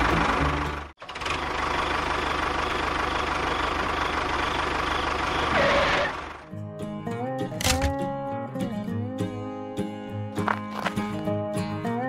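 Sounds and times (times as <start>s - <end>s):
tractor engine running: 0.0s - 6.5s.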